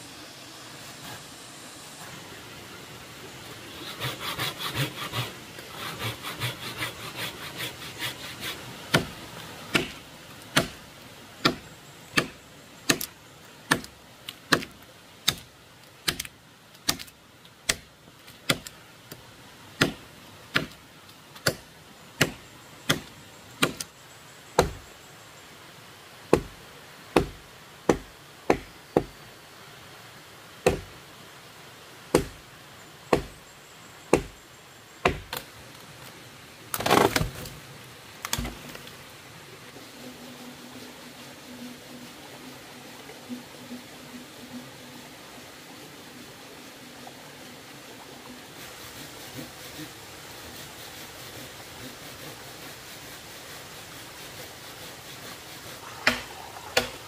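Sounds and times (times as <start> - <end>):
rasping on wood: 3.8 - 9.0.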